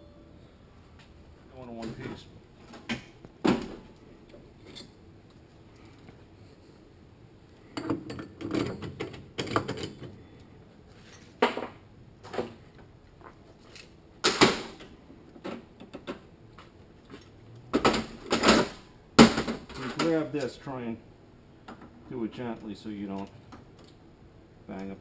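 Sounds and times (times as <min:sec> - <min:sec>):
metal parts clinking and clattering: 0:04.6 - 0:05.0, 0:07.8 - 0:10.2.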